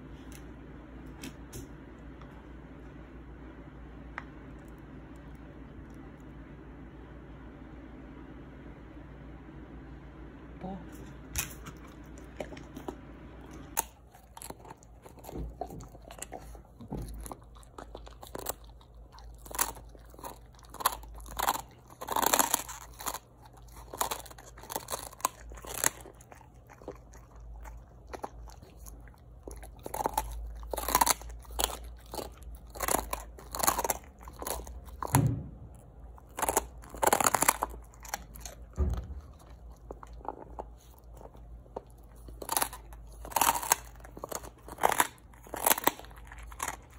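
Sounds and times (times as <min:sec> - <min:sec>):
dog crunching a hard treat: 0:11.4 - 0:46.9.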